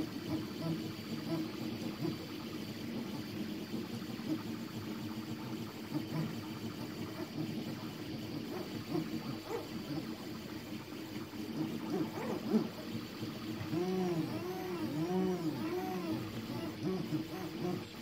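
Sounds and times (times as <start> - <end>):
cooling fan whirring: 0.0 - 18.0
stepper motors whirring: 6.0 - 10.6, 11.4 - 18.0.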